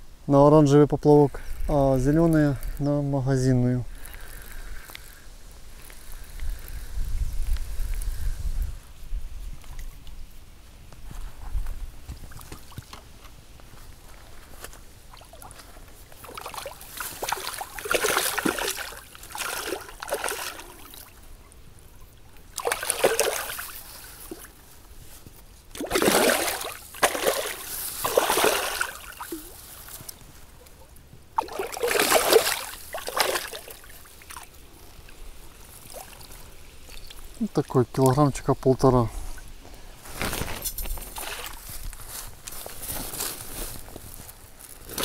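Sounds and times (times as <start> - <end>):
fish splashing in water: 15.1 - 21.2, 22.4 - 24.6, 25.7 - 29.9, 31.4 - 34.6.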